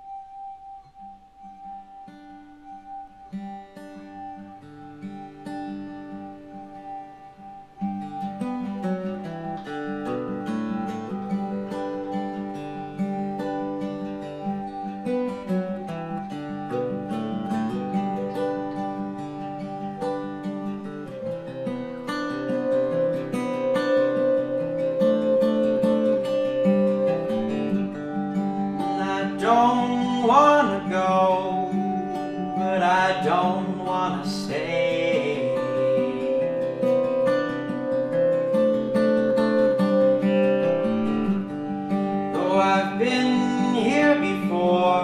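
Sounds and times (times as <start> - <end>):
acoustic guitar strumming: 0.0 - 45.0
glass harmonica steady tone: 0.0 - 45.0
man singing: 28.9 - 36.7, 42.4 - 45.0.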